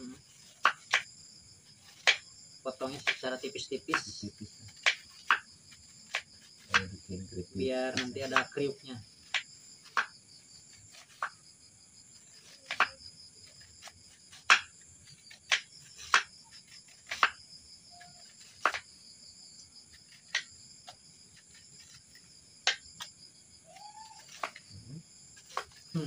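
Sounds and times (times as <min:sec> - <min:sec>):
crickets chirping: 0:00.0 - 0:26.0
knife chopping on board: 0:01.9 - 0:02.3, 0:02.9 - 0:05.5, 0:06.1 - 0:07.1, 0:07.9 - 0:08.6, 0:09.2 - 0:10.1, 0:12.4 - 0:17.4, 0:18.1 - 0:18.9, 0:23.8 - 0:24.7, 0:25.4 - 0:26.0.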